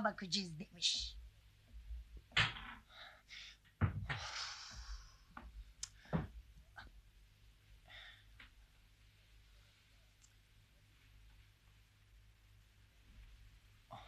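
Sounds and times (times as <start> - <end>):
knocks and thuds: 3.8 - 4.3.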